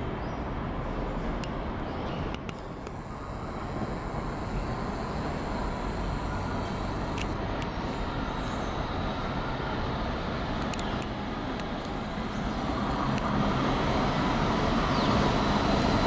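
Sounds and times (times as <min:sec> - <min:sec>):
vehicle rumble: 0:00.0 - 0:16.0
faint clicks: 0:02.3 - 0:07.8, 0:10.4 - 0:12.0.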